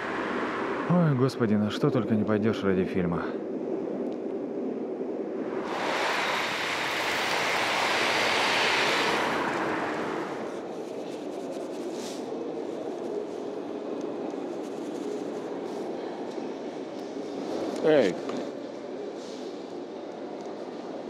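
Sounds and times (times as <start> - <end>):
steady low hum: 0.0 - 21.0
tyres hissing on wet road: 5.5 - 11.0.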